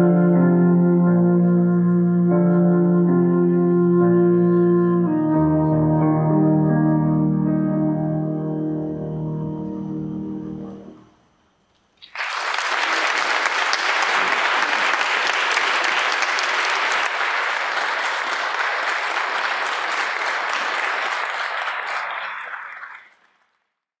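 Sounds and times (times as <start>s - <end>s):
audience applauding: 12.0s - 23.6s.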